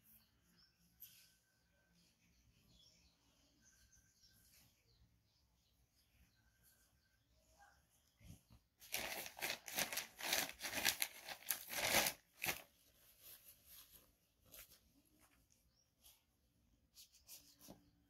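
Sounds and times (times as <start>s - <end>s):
paper sheet crumpling and rustling: 8.8s - 16.2s.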